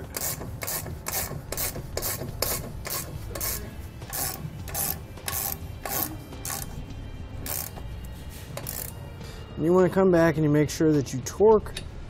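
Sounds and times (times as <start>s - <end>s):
socket ratchet clicking: 0.0s - 6.8s, 7.4s - 7.9s, 8.6s - 9.0s.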